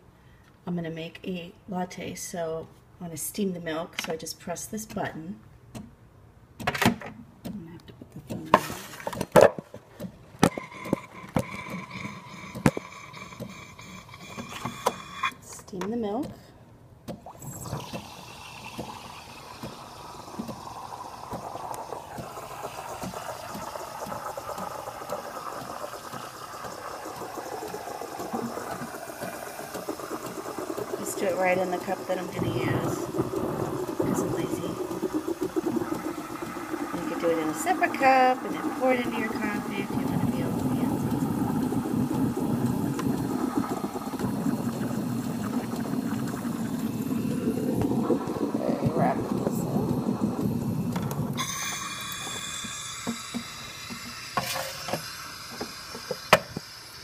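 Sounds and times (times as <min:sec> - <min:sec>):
steam wand frothing milk: 0:10.4 - 0:15.5, 0:17.3 - 0:57.0.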